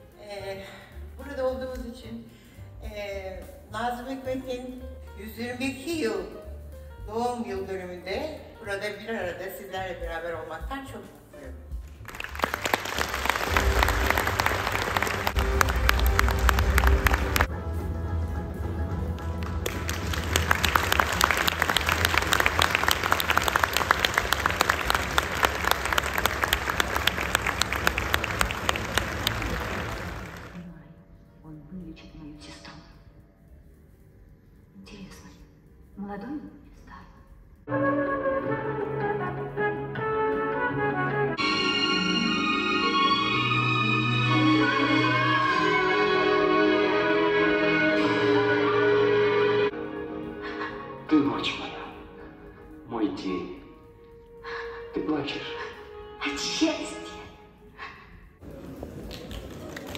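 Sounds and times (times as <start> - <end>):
large audience applauding: 11.8 - 17.5, 19.0 - 30.6, 58.4 - 59.9
film score with held chords: 37.7 - 56.5.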